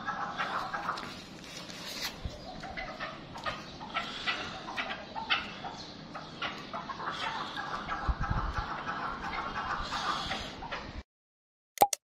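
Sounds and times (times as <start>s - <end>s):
partridges calling: 2.2s - 10.8s.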